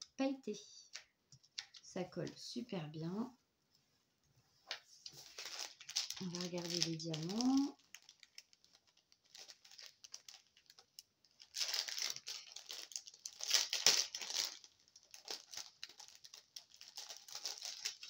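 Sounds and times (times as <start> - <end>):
plastic bags crinkling: 5.0 - 18.0.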